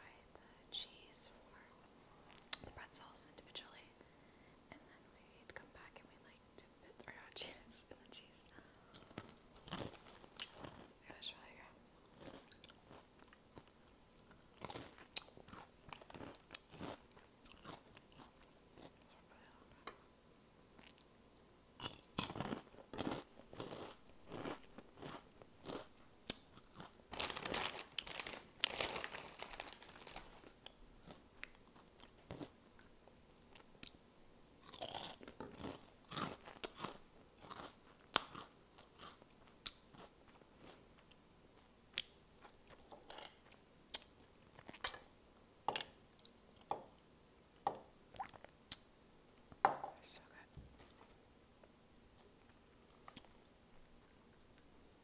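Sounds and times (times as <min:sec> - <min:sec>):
crunchy snack chewing: 0:08.9 - 0:10.9, 0:12.0 - 0:19.0, 0:20.8 - 0:32.9, 0:34.6 - 0:41.2.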